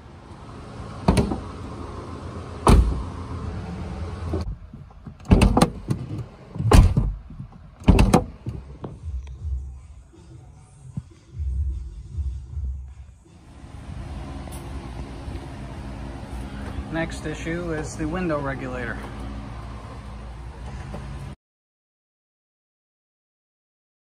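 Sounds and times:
car door latch clicks and clunks: 1.0 - 1.5, 2.6 - 3.1, 4.3 - 9.0
steady hum: 8.2 - 21.4.

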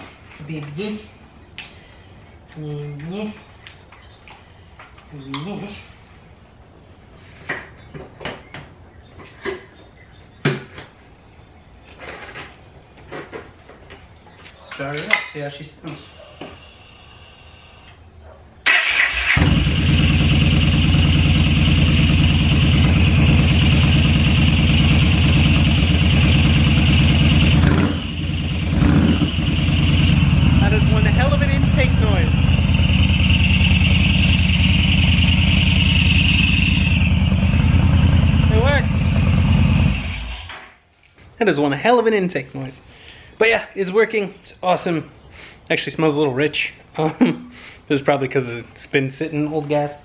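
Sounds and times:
motorcycle engine running loudly: 19.4 - 40.5.

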